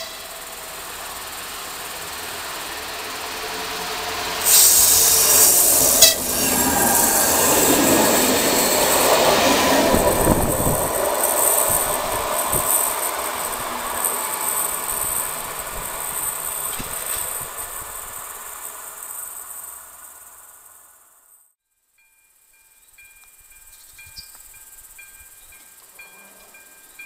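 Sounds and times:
train horn blast: 0.0 - 0.4
train wheels clattering and squealing: 0.0 - 19.8, 23.5 - 27.0
train rumbling past: 0.0 - 21.2, 23.0 - 27.0.

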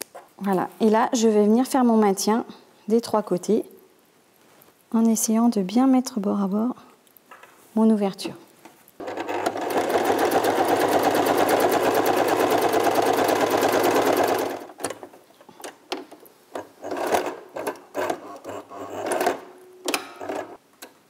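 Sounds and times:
electric sewing machine stitching: 9.0 - 14.8, 16.8 - 19.5.

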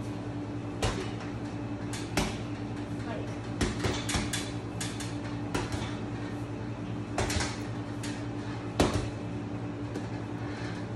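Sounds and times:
low steady hum: 0.0 - 10.9
gloves punching heavy bag: 1.9 - 2.6, 3.6 - 4.4, 7.2 - 7.6, 8.7 - 9.2.

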